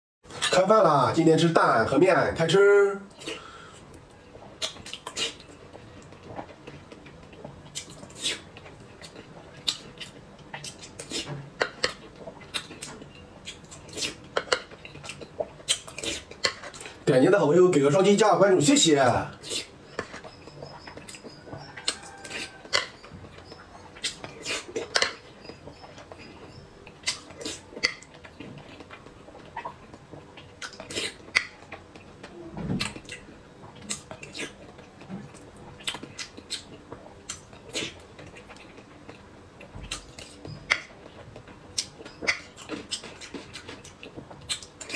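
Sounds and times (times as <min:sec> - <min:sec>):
chewing and sipping: 0:03.1 - 0:17.0, 0:19.3 - 0:44.9
mouth clicks and smacks: 0:04.6 - 0:06.2, 0:07.7 - 0:16.9, 0:25.8 - 0:32.1, 0:32.8 - 0:39.2, 0:41.7 - 0:44.9.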